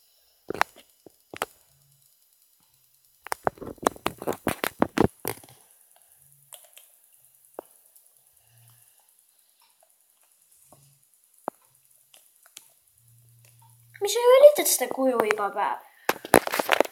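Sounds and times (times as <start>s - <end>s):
taps and clicks: 11.4s - 12.7s.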